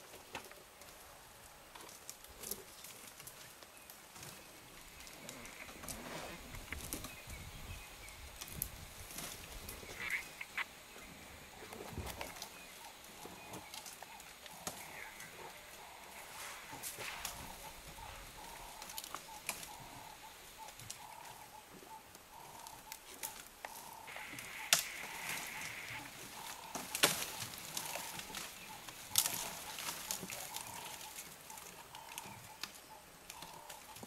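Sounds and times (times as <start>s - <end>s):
branches snapping and cracking: 11.7s - 15.3s, 16.8s - 20.0s, 22.6s - 34.0s.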